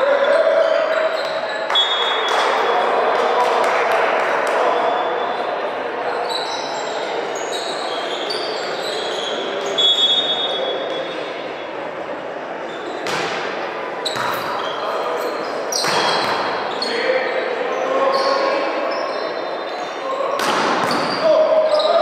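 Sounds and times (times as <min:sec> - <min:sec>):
murmur of voices: 0:00.0 - 0:22.0
shoes squeaking on court floor: 0:00.2 - 0:02.5, 0:06.1 - 0:11.5, 0:12.6 - 0:22.0
volleyball smacks: 0:13.0 - 0:13.5, 0:20.4 - 0:21.1.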